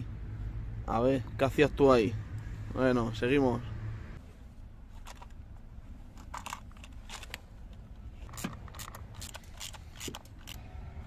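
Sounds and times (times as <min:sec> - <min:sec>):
ratchet clicking: 0:08.3 - 0:10.6.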